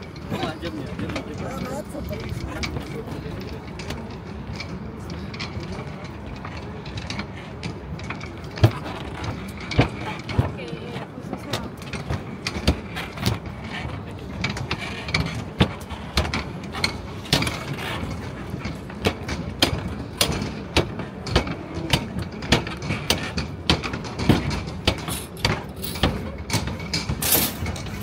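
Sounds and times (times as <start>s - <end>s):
low city hum: 0.0s - 28.0s
sharp clicks and knocks: 14.4s - 28.0s.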